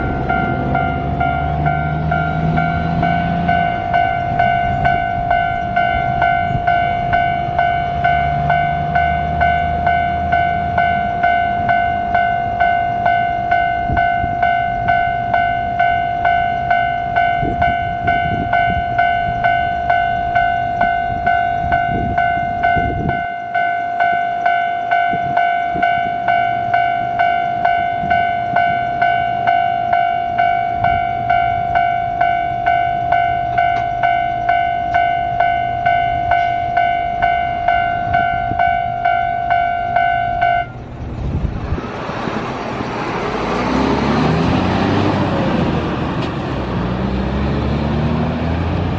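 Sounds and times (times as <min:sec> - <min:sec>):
level crossing alarm dinging: 0:00.0 - 0:40.8
low rumble: 0:35.3 - 0:47.0.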